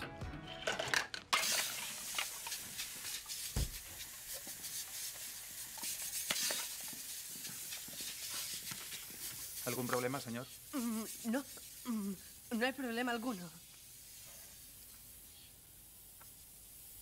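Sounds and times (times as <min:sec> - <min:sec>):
music: 0:00.0 - 0:01.3
steady hiss: 0:01.4 - 0:17.0
low thump: 0:03.6 - 0:03.8.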